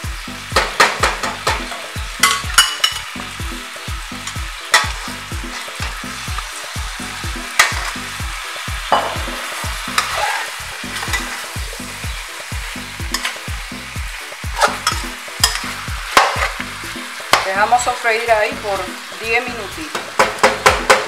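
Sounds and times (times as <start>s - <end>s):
meat sizzling in oil: 0.0s - 21.0s
metal spoon clinking on pot: 2.2s - 3.1s, 14.8s - 16.3s.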